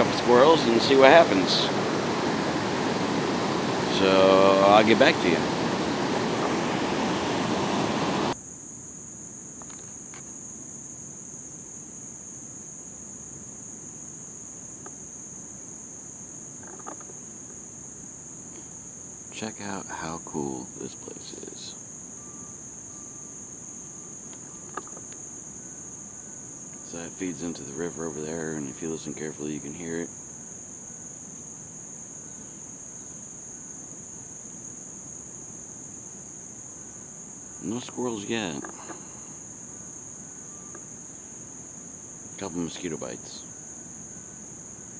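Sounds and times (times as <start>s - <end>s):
loud rushing noise: 0.0s - 8.4s
insects singing: 0.0s - 8.5s, 9.2s - 44.9s.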